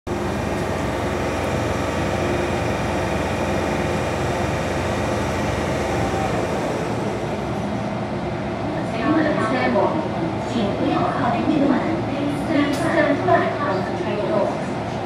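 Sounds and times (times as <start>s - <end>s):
metro train running rumble: 0.0s - 15.0s
train whining tones: 0.1s - 8.8s.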